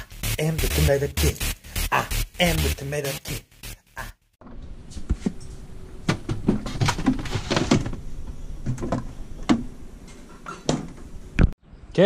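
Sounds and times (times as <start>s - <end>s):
items knocking and clattering in fridge: 6.0s - 8.0s, 8.6s - 9.7s.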